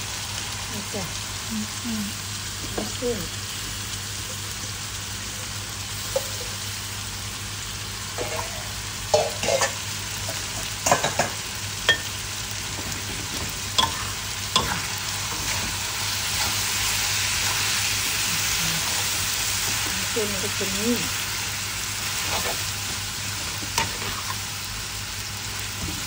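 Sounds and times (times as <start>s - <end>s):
food sizzling in a wok: 0.0s - 26.0s
metal spatula scraping a wok: 22.2s - 22.7s.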